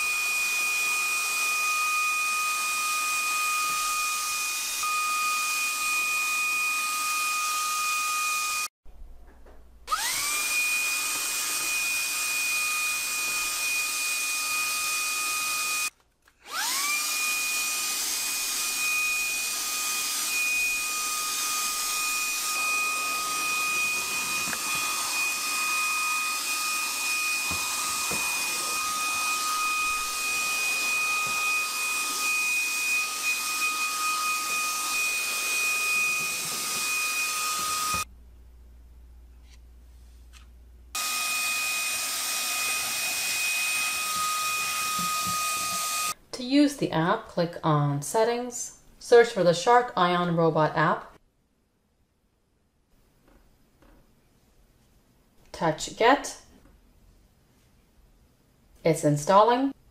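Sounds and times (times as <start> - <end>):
handheld vacuum whining: 0.0 - 8.7, 9.9 - 38.1, 41.0 - 46.2.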